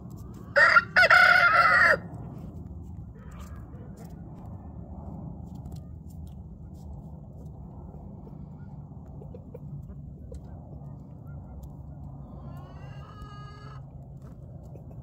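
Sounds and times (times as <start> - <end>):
steady low rumble: 0.0 - 15.0
rooster crowing: 0.5 - 2.1.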